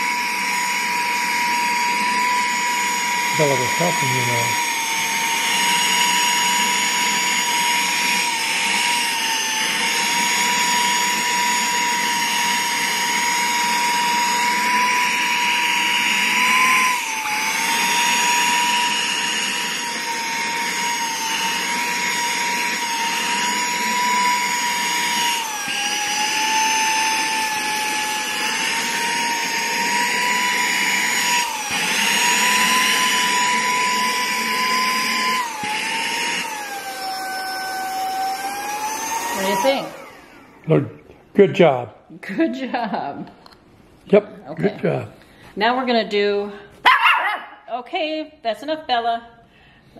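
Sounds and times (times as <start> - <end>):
handheld vacuum whining: 0.0 - 40.9.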